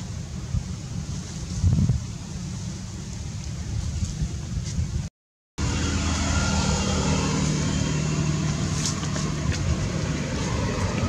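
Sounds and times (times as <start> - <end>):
vehicle engine running: 5.6 - 11.0.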